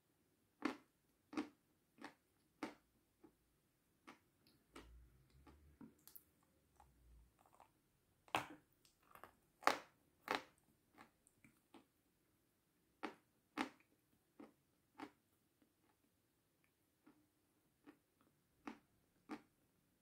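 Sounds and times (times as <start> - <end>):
meringue crunching when chewed: 0.6 - 3.4, 4.0 - 11.9, 17.0 - 19.6.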